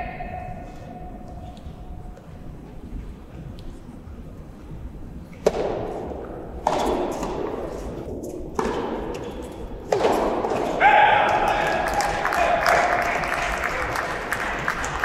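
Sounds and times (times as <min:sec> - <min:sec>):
rackets hitting ball with echo: 0:05.3 - 0:15.0.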